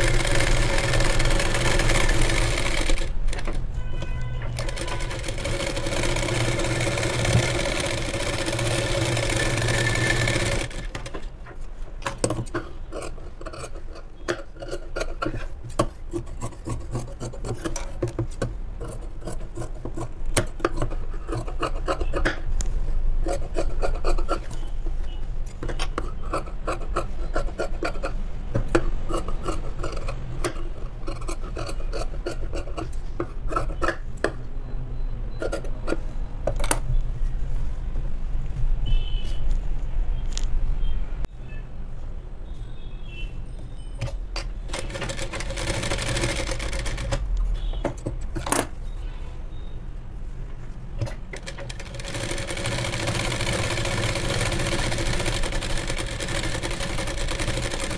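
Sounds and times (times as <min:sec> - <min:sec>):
sewing machine running: 0:00.0 - 0:03.6, 0:04.6 - 0:11.2, 0:44.7 - 0:47.2, 0:51.3 - 0:57.9.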